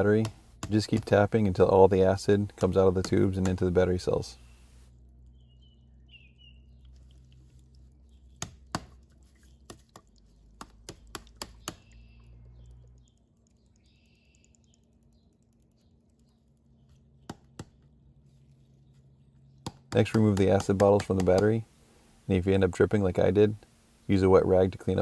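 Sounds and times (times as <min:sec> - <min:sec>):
low steady hum: 0:00.0 - 0:25.0
sharp plastic taps: 0:09.7 - 0:11.8, 0:19.6 - 0:21.6.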